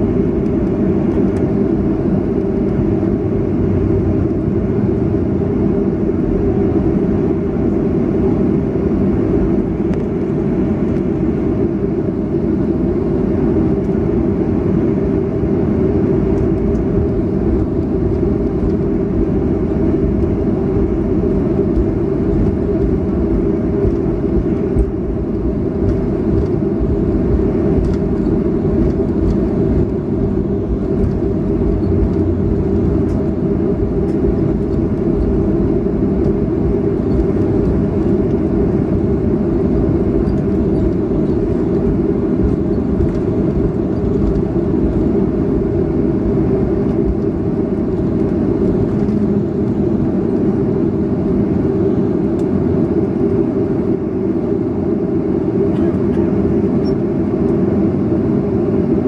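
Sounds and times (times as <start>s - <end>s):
jet engines rumbling in cabin: 0.0s - 59.0s.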